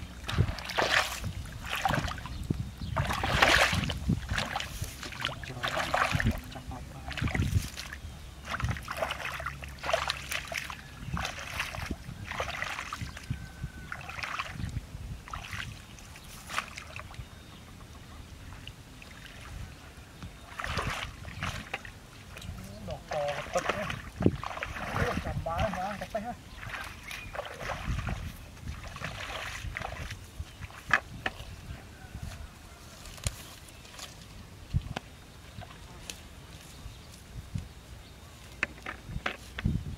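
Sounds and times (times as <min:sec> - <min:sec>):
hands splashing shallow water: 0:00.2 - 0:02.3, 0:03.0 - 0:13.3, 0:13.9 - 0:17.2, 0:20.5 - 0:31.5.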